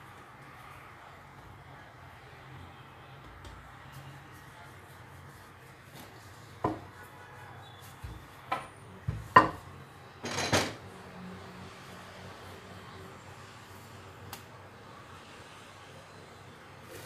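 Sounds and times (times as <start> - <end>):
rolling pin rolling dough: 3.2 - 10.4.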